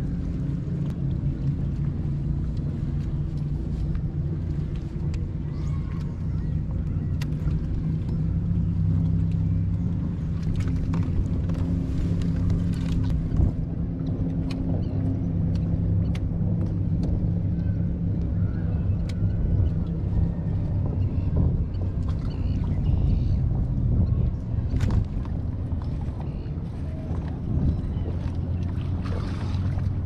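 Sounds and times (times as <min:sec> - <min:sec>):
motorboat engine droning: 0:00.0 - 0:30.0
small clicks and taps: 0:15.5 - 0:17.2.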